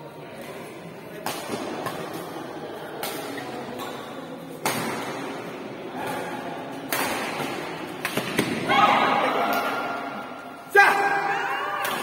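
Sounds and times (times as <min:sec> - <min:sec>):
rackets striking shuttlecock: 0:01.1 - 0:02.3, 0:02.9 - 0:08.7.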